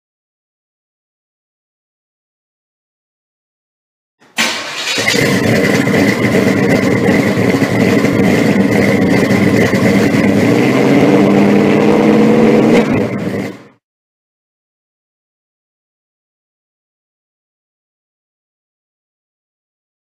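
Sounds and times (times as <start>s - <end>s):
car engine running: 4.4s - 13.8s.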